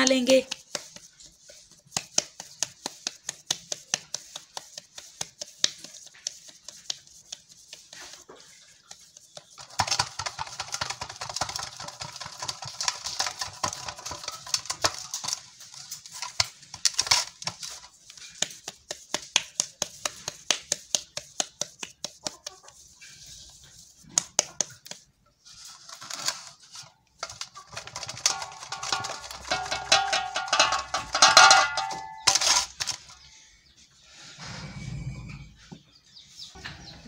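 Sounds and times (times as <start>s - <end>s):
dough rubbing and scraping: 0.0s - 33.3s
dough slapped between palms: 1.8s - 8.0s, 18.3s - 22.4s.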